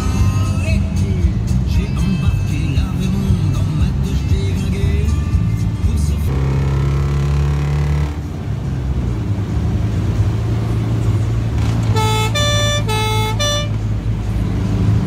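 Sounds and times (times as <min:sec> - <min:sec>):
car engine running: 0:00.0 - 0:15.0
two-tone car horn: 0:11.8 - 0:13.9.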